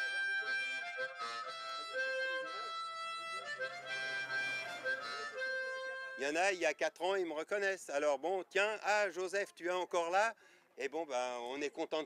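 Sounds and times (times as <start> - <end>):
harmonica chords: 0.0 - 6.7.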